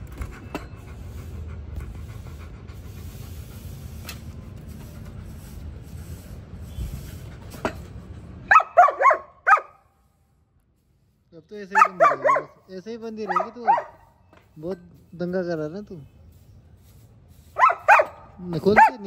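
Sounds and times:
dog yelping: 0:08.5 - 0:09.7, 0:11.8 - 0:12.5, 0:13.3 - 0:14.0, 0:17.6 - 0:18.2.

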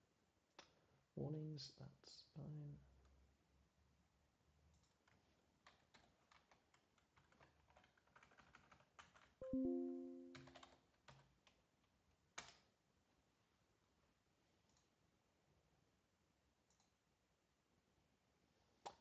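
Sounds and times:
computer keyboard typing: 0:05.6 - 0:11.3
short multi-tone chime: 0:09.4 - 0:10.5.

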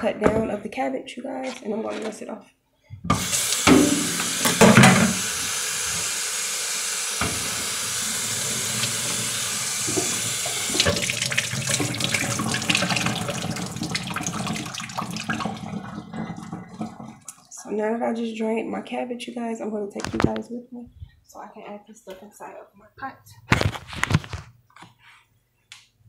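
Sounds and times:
faucet running into sink: 0:03.1 - 0:17.5.

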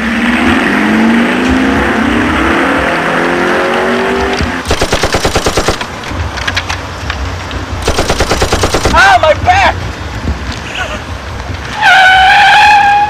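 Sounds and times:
machine-gun fire: 0:04.6 - 0:06.0, 0:07.8 - 0:09.3.

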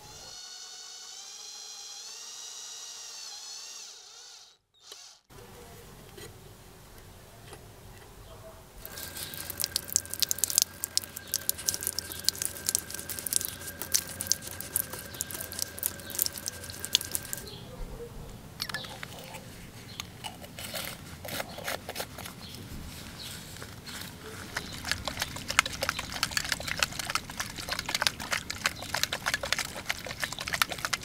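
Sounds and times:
rubber gloves crackling: 0:08.8 - 0:17.5, 0:20.4 - 0:31.0
tap water running: 0:08.8 - 0:17.5, 0:24.6 - 0:31.0
crinkling and handling clicks: 0:18.6 - 0:22.6.

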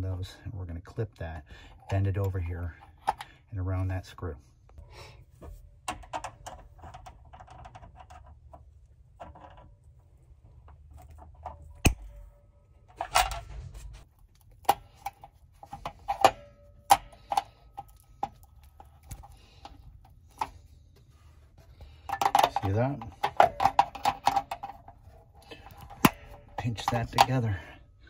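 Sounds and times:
hand tools clinking on metal: 0:25.4 - 0:27.8.

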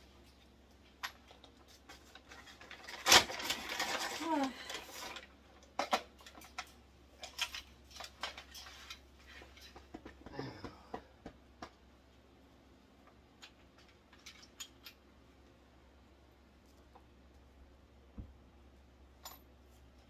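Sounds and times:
drill bits rattling in plastic case: 0:02.2 - 0:04.2.

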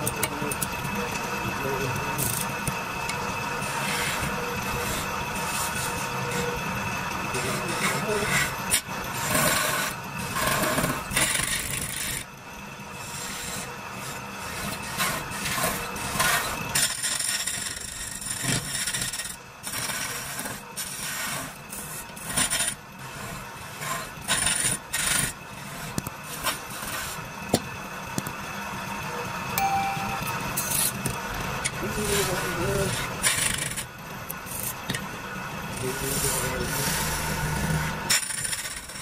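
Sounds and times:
lathe motor humming: 0:00.0 - 0:10.9
lathe tool scraping wood: 0:03.2 - 0:12.3, 0:12.9 - 0:27.4, 0:31.8 - 0:34.8, 0:35.7 - 0:39.0.

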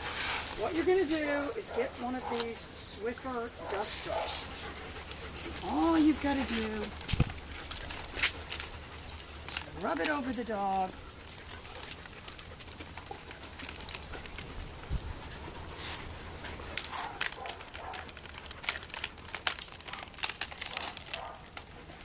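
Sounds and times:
duster crinkling on fur: 0:00.0 - 0:22.0.

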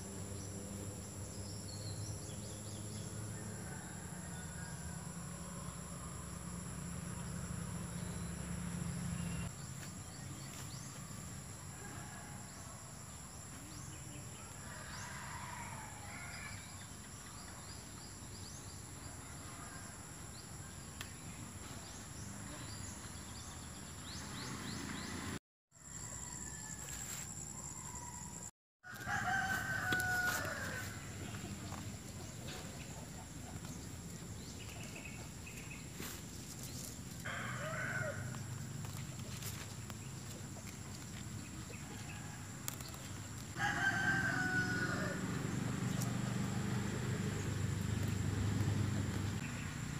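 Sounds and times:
rooster crowing: 0:03.3 - 0:06.4, 0:14.4 - 0:16.8, 0:25.8 - 0:31.1, 0:37.2 - 0:38.4, 0:43.5 - 0:45.5.

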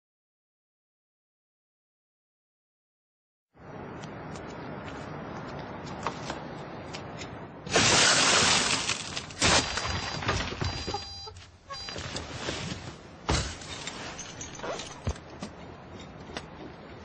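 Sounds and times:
car window glass smashing: 0:07.7 - 0:10.5.

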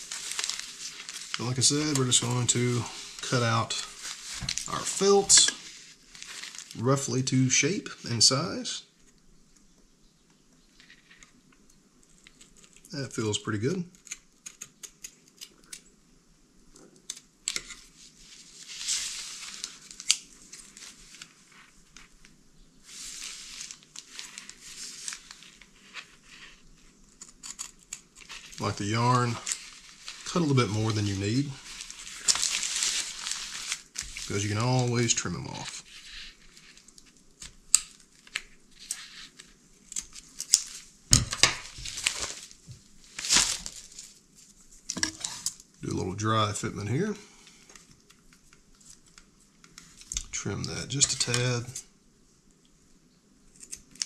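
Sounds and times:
plastic wrapper crinkling: 0:00.0 - 0:07.2, 0:17.5 - 0:45.7.

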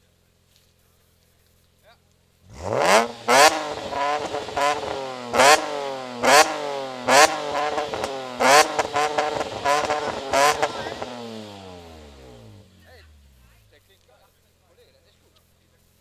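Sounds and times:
car engine throttle blips: 0:02.5 - 0:14.1.

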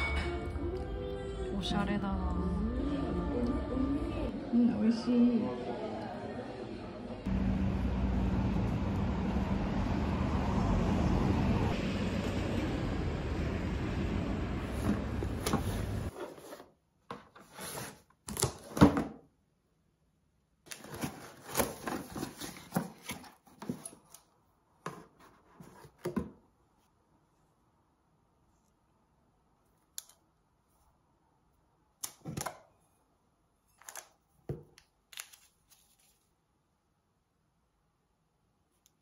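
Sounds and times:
rumbling street noise: 0:07.3 - 0:16.1
cardboard box being opened: 0:20.7 - 0:24.1
cardboard rustling: 0:20.7 - 0:24.2.

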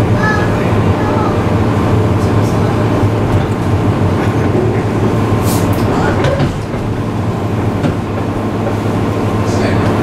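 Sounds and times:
electric train cabin hum: 0:00.0 - 0:10.0.

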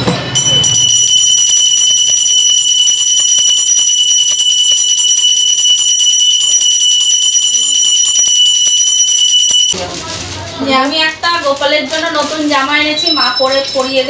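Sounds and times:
hand bell ringing rapidly: 0:00.4 - 0:09.8.

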